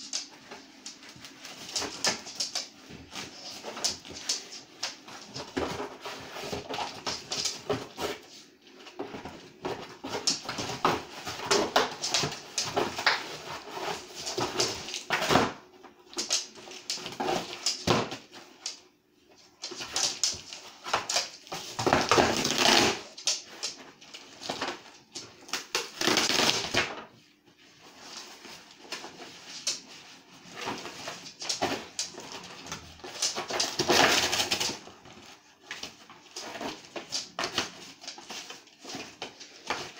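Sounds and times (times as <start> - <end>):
cardboard ripping and crackling: 21.0 - 23.2, 25.6 - 26.9, 30.5 - 39.9.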